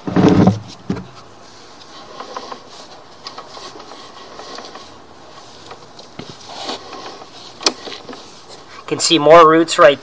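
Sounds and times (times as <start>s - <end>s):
cable clicking and rustling: 1.8s - 8.7s.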